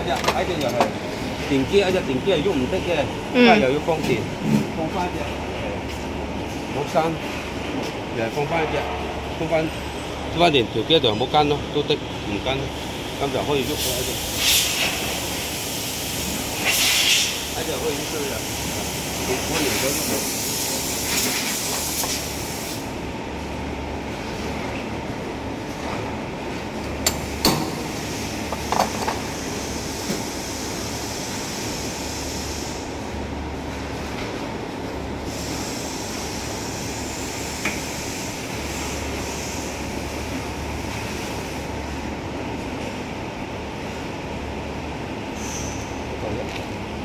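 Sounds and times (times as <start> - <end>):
machine hiss: 12.6 - 23.0, 27.2 - 33.1, 35.2 - 41.7, 45.3 - 46.0.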